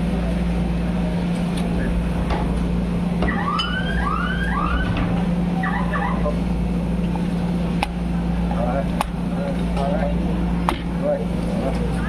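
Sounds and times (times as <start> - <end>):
low machine hum: 0.0 - 12.0
siren-like wails: 3.2 - 6.4.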